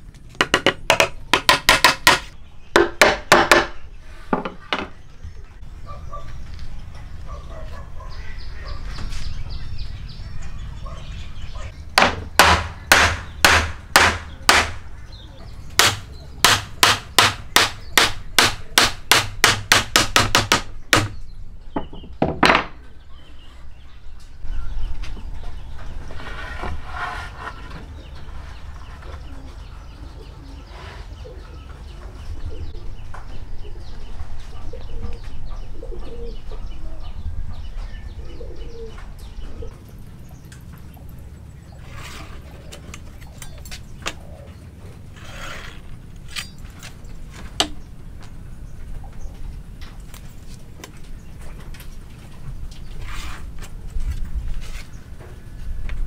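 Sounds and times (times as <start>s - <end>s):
hammer striking wood: 0.4s - 3.8s, 12.0s - 14.8s, 15.8s - 21.2s.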